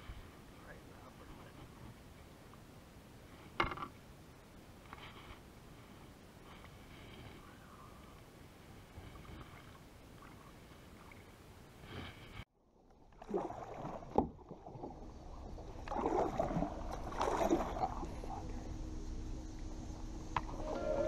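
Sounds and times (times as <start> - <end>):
water sloshing against hull: 4.8 - 18.7
paddle splashes: 13.0 - 18.4.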